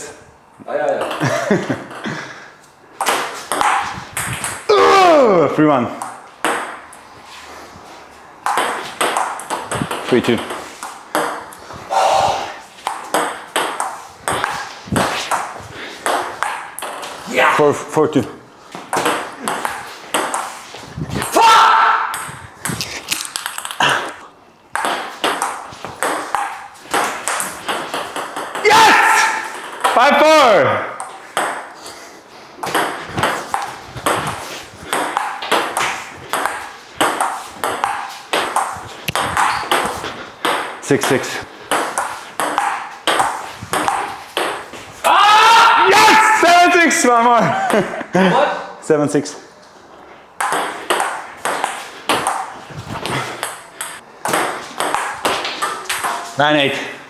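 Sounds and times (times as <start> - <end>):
ping pong ball hitting paddles: 0.9 - 1.3, 3.0 - 4.7, 5.9 - 7.0, 8.4 - 11.6, 12.8 - 17.2, 18.7 - 20.6, 22.0 - 30.2, 30.8 - 31.8, 32.6 - 44.8, 50.4 - 56.4.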